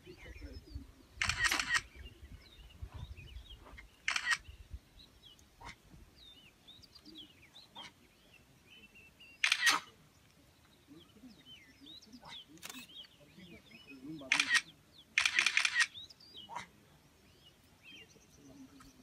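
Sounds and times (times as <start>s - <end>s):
small birds chirping: 0.0s - 19.0s
camera shutters firing: 1.2s - 1.9s, 4.1s - 4.5s, 9.4s - 9.9s, 14.3s - 16.0s.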